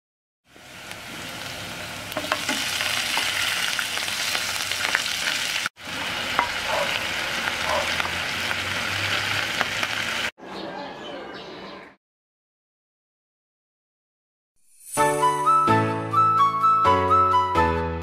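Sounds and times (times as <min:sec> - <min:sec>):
meat sizzling in a pan: 0:00.5 - 0:10.3.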